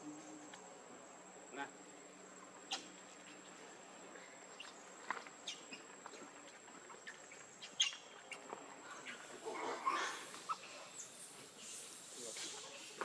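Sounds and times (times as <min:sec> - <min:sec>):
insect whine: 0:00.0 - 0:13.0
bird chirps: 0:02.6 - 0:13.0.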